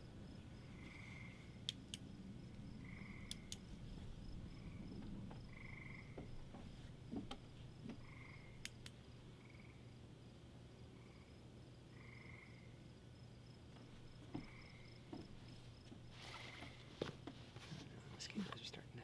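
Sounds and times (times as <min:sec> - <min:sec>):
insects chirping: 0:00.0 - 0:19.0
sharp clicks: 0:01.6 - 0:02.1, 0:03.2 - 0:03.7, 0:08.6 - 0:09.0
frog trilling: 0:02.8 - 0:03.6, 0:05.5 - 0:06.2, 0:08.0 - 0:08.6.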